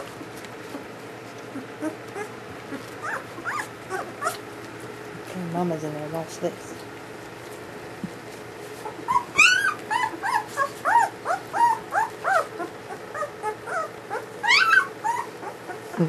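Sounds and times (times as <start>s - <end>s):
puppies whimpering and crying: 0.0s - 4.7s, 8.6s - 16.0s
shrill puppy squeals: 3.0s - 4.4s, 8.8s - 15.8s.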